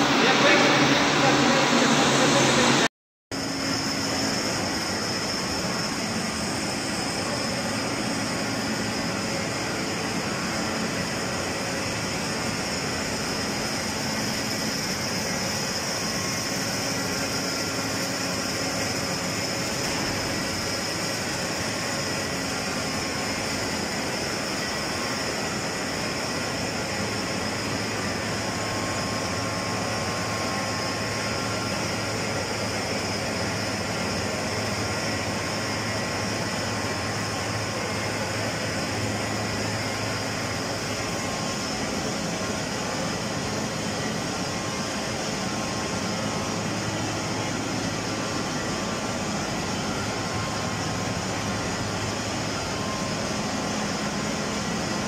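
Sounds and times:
hydro turbine rushing roar: 0.0 - 55.0.

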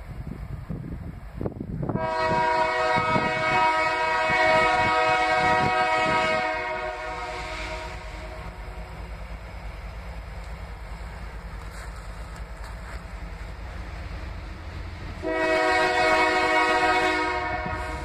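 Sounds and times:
train rumble: 0.0 - 18.0
locomotive air horn blast: 1.9 - 8.6, 15.2 - 18.0.

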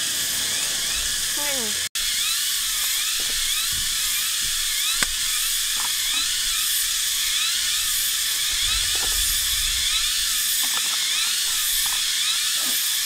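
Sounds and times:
cicada chorus droning: 0.0 - 13.0
sharp click: 4.8 - 6.2.

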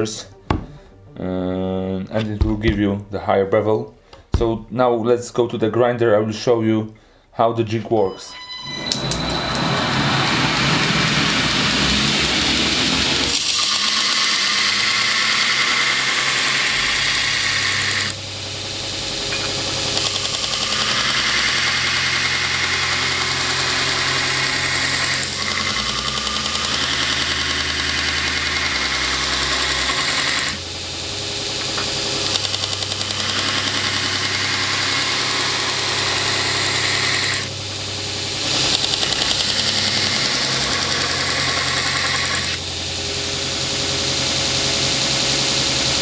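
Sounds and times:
belt grinder motor hum: 8.6 - 46.0
blade grinding hiss: 9.2 - 45.7.

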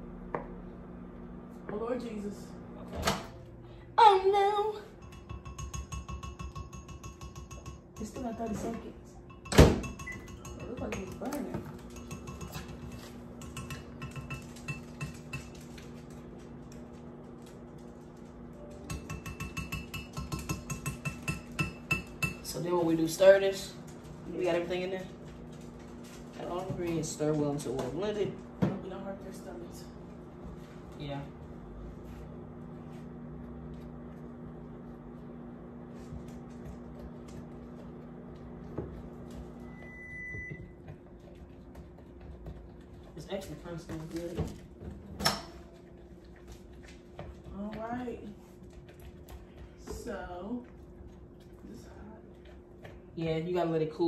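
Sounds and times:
steady low hum: 0.0 - 54.0
spoon clinking against glass: 5.0 - 8.6, 9.3 - 11.2, 11.9 - 12.7
long microwave beep: 9.4 - 10.3, 39.6 - 40.8.

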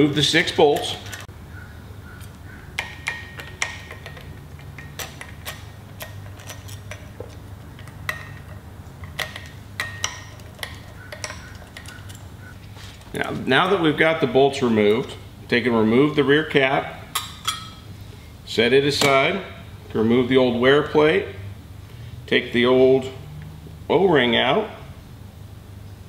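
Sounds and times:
steady low hum: 0.0 - 26.0
metallic clicks and clinks: 2.8 - 12.4.

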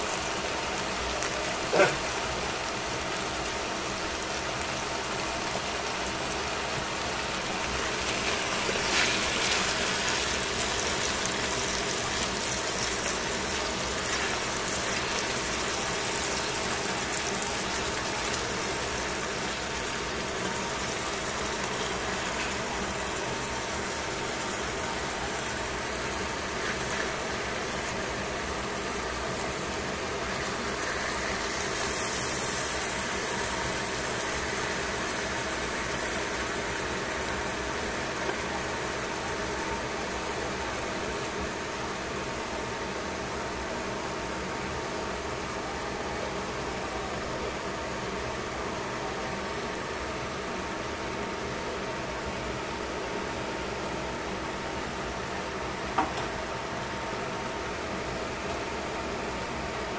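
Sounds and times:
vegetables sizzling in a pan: 0.0 - 45.2.

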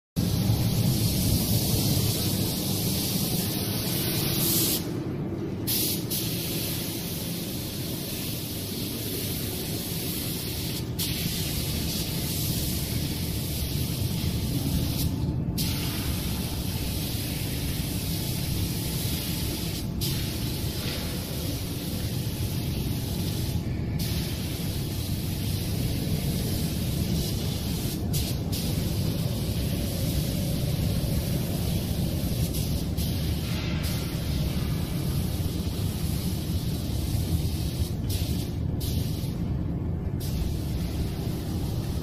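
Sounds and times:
spray gun hissing: 0.2 - 5.0, 5.6 - 42.0
low steady rumble: 20.4 - 42.0.

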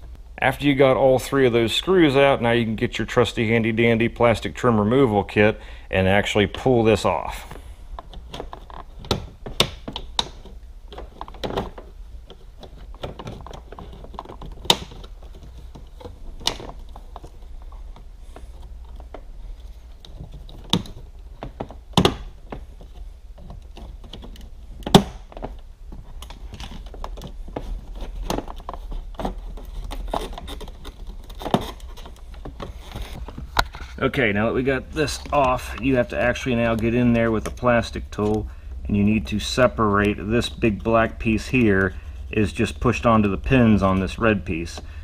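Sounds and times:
plastic trim clicks and knocks: 20.0 - 22.7.

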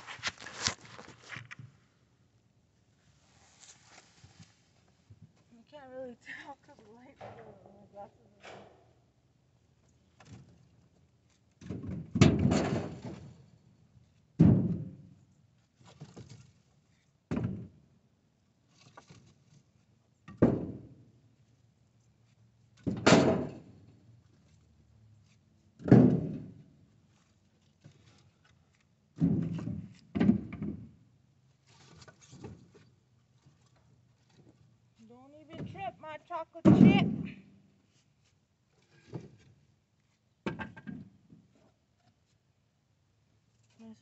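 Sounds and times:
firewood thunking into truck bed: 11.6 - 13.3, 14.4 - 15.0, 22.8 - 23.6, 25.8 - 26.5, 29.2 - 30.9, 36.6 - 37.4.

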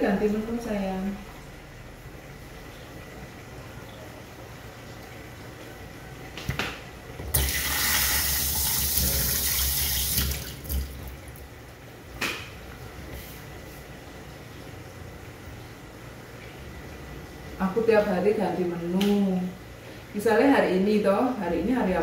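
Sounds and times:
water splashing in sink: 7.2 - 11.5.

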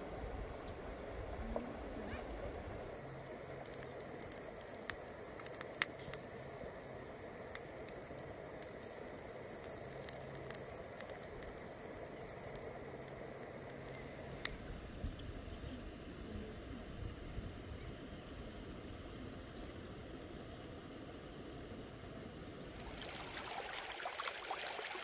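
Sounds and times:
open fire crackling and popping: 2.8 - 14.8, 22.8 - 25.0.

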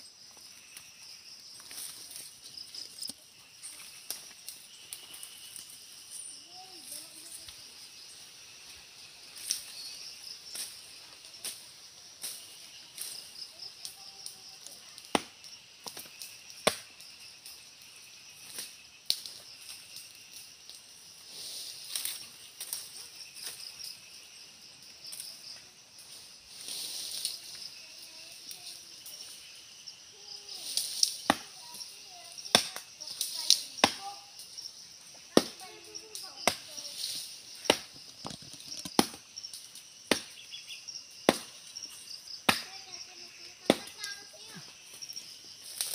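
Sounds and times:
machete chopping tree trunk: 15.1 - 15.4, 16.6 - 16.9, 31.2 - 31.5, 32.5 - 32.8, 33.8 - 34.0, 35.3 - 35.6, 36.4 - 36.7, 37.6 - 38.0, 38.8 - 39.2, 40.1 - 40.4, 41.3 - 41.6, 42.4 - 42.7.

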